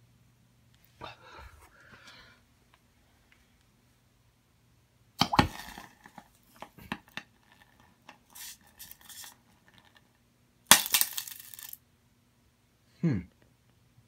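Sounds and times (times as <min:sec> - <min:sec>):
sharp pop: 0:05.2 - 0:05.8.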